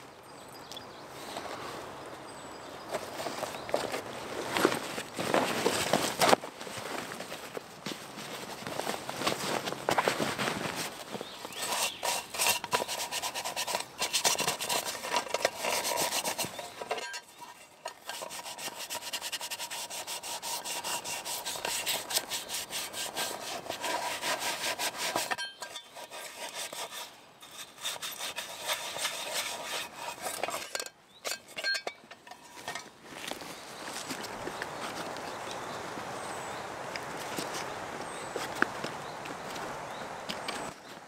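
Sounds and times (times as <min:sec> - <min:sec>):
gloved hands scrubbing a pot: 0:10.2 - 0:32.8.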